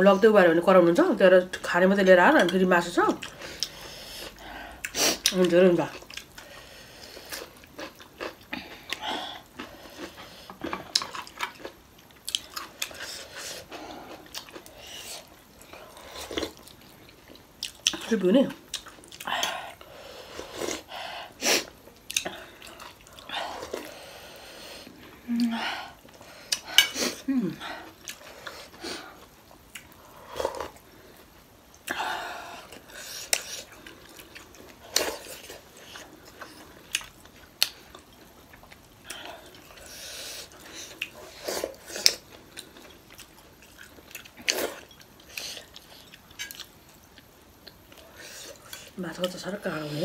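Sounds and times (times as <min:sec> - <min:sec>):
chewing and mouth smacks: 0:14.1 - 0:18.1, 0:18.7 - 0:19.5, 0:40.8 - 0:49.0
person humming mm: 0:25.2 - 0:25.7.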